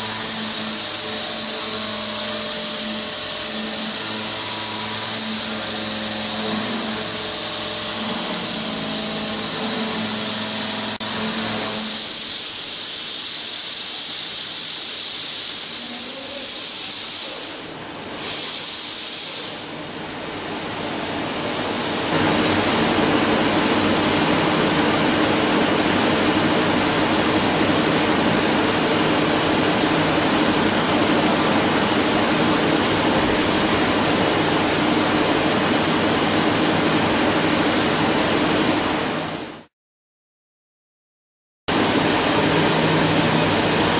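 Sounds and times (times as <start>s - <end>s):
constant loud hiss: 12.0s - 34.2s.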